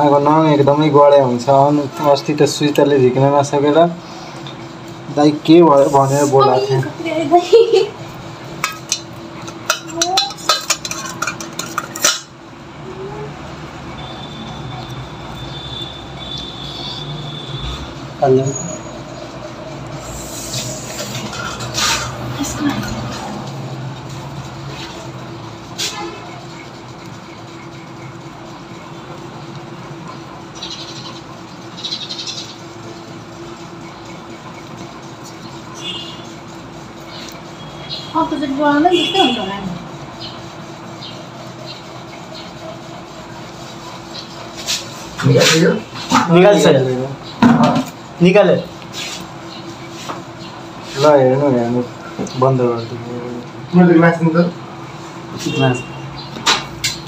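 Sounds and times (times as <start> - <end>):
low background hum: 0.0 - 57.0
metal instruments clinking in steel bowl: 8.6 - 12.4.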